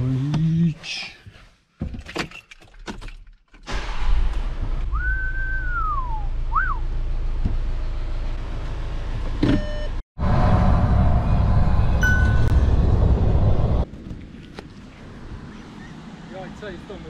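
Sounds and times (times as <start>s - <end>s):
person whistling: 4.9s - 6.8s
short chime: 12.0s - 12.7s.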